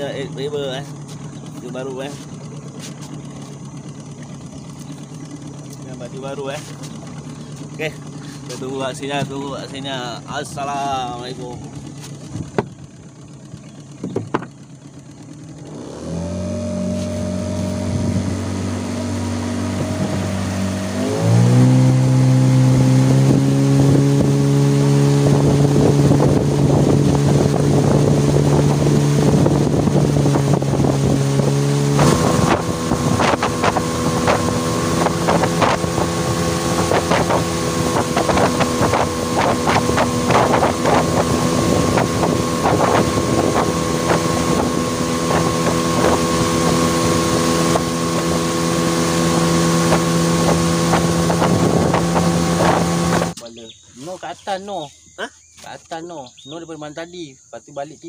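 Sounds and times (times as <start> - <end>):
water splashing against hull: 0.0 - 53.5
outboard motor running: 0.0 - 57.0
wind on microphone: 16.6 - 53.4.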